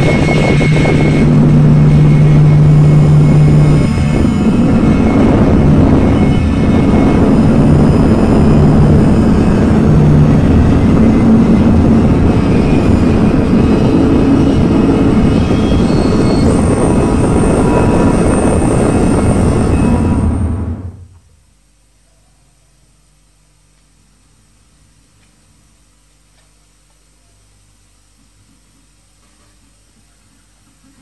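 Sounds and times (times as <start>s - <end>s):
low droning rumble: 0.0s - 21.3s
noise haze: 0.0s - 31.0s
thin high whistling tones: 9.6s - 21.1s.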